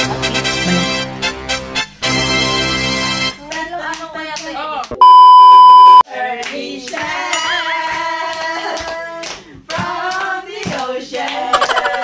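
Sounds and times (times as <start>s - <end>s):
person singing: 0.1s - 1.0s
test-tone beep: 5.0s - 6.0s
hand claps: 6.4s - 11.9s.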